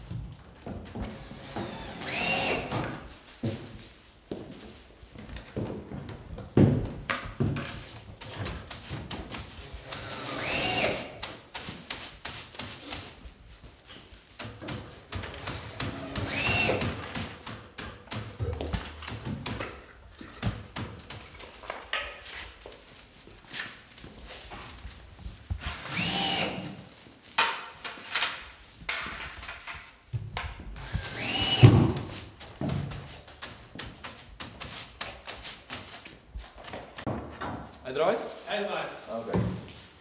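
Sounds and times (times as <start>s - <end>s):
cordless drill whirring: 1.2s - 2.7s, 9.8s - 11.1s, 15.6s - 16.9s, 25.6s - 26.8s, 30.8s - 31.8s.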